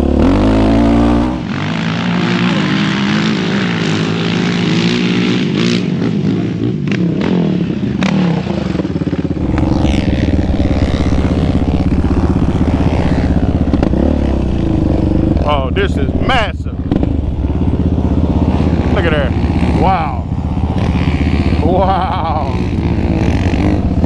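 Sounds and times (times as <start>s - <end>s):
quad engines revving: 0.0s - 24.0s
single-cylinder engine running: 8.0s - 24.0s.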